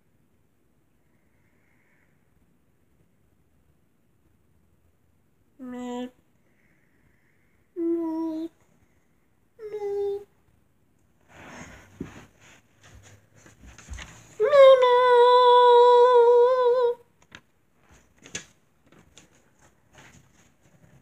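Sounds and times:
faint rustling: 11.1 - 15.2, 17.3 - 21.0.

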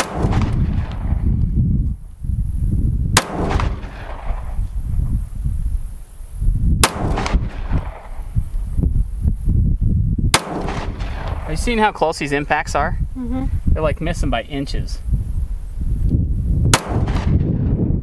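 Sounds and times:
pistol shots: 0.0 - 1.2, 3.2 - 4.5, 6.8 - 8.2, 10.4 - 11.5, 16.8 - 17.5
wind rumbling on microphone: 0.0 - 18.0.

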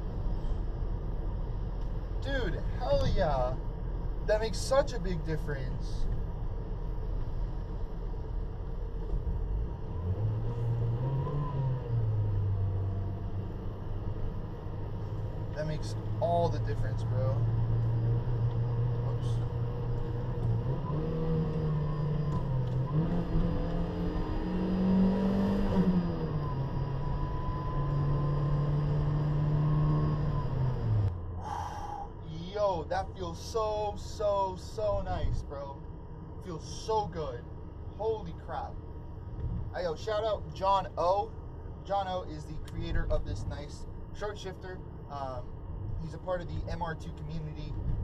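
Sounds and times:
car engine rumble: 0.0 - 48.0
road noise: 0.0 - 48.0
car engine revving: 9.5 - 31.2.

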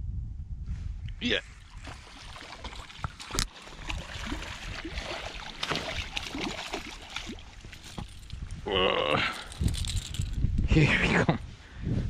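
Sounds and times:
wind rumbling on microphone: 0.0 - 12.0
water splashing and trickling: 1.4 - 10.4.

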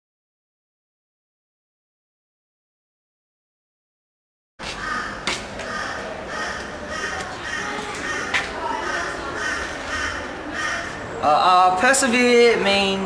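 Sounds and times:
murmur of voices: 4.8 - 13.0.

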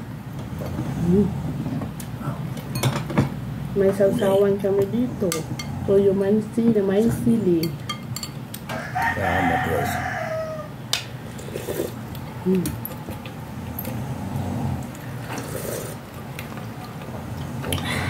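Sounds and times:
spoons clinking on plates: 7.5 - 8.4
rooster crowing: 8.7 - 10.8.

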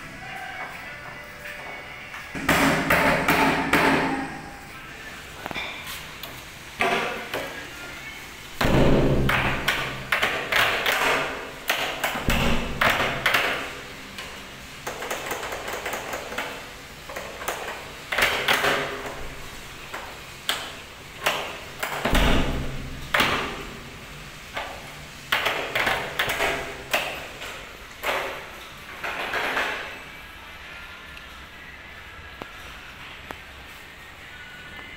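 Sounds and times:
door thuds: 8.6 - 9.7.

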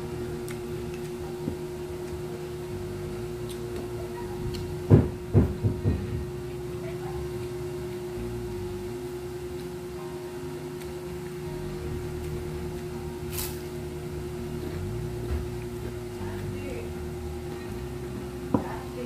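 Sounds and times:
steady hum: 0.0 - 19.0
low thumps: 4.7 - 6.4.

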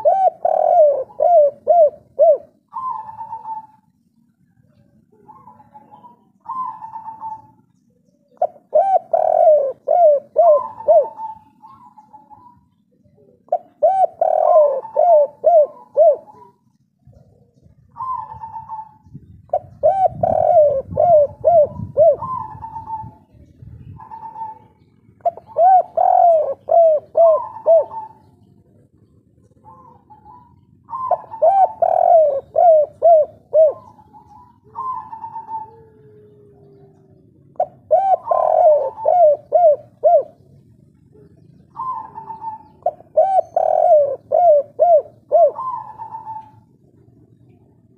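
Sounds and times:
dove cooing: 0.0 - 47.9.

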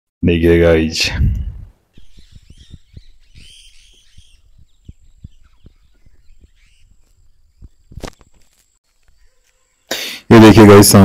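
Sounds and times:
microphone handling bumps: 1.2 - 8.7
parrots calling: 2.0 - 7.1.

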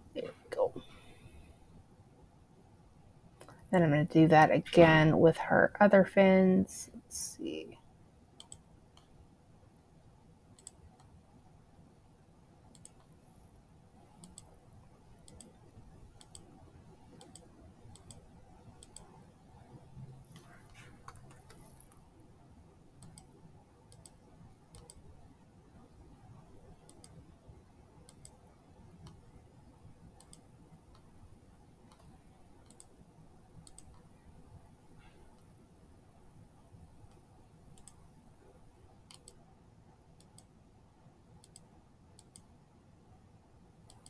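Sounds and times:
computer mouse clicks: 8.4 - 9.2, 10.6 - 11.2, 12.7 - 13.2, 14.0 - 14.6, 15.2 - 19.2, 20.3 - 22.1, 23.0 - 25.2, 26.7 - 27.2, 28.0 - 29.3, 30.1 - 31.1, 31.8 - 33.0, 33.6 - 34.2, 37.0 - 39.4, 40.2 - 40.5, 41.4 - 42.5.

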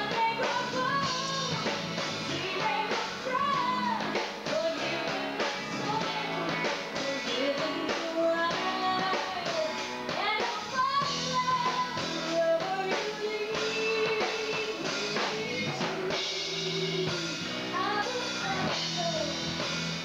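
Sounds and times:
woman singing: 0.0 - 19.5
drum kit: 0.0 - 20.0
electric guitar: 0.0 - 20.0.

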